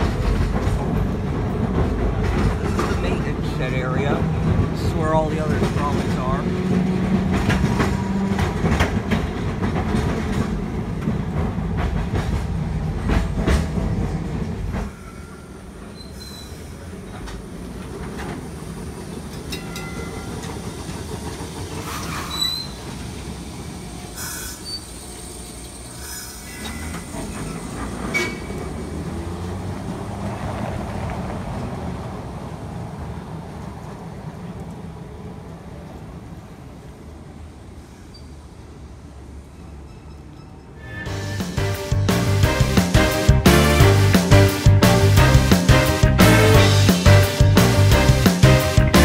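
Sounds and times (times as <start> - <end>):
streetcar rumbling on rails: 0.0 - 49.0
high-pitched wheel squeals: 15.0 - 16.7, 21.9 - 22.8, 26.0 - 28.6.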